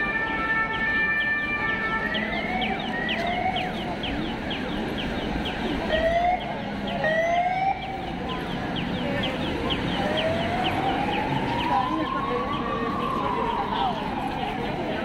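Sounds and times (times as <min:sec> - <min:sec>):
siren wailing: 0:00.0 - 0:03.8, 0:09.9 - 0:15.0
city street noise: 0:00.0 - 0:15.0
siren yelp chirping: 0:00.0 - 0:15.0.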